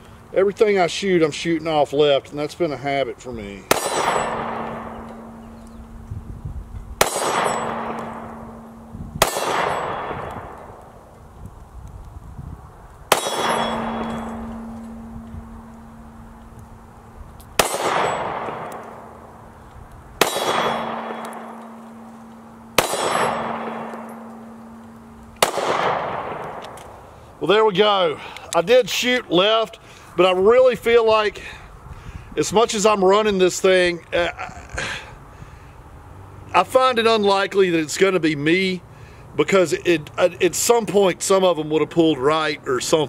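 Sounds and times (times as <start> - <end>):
pistol shots: 3.7 - 5.7, 7.0 - 10.9, 13.1 - 16.2, 17.6 - 19.4, 20.2 - 26.9
low ringing tone: 3.9 - 6.5, 7.3 - 10.2, 13.1 - 17.2, 20.6 - 25.4.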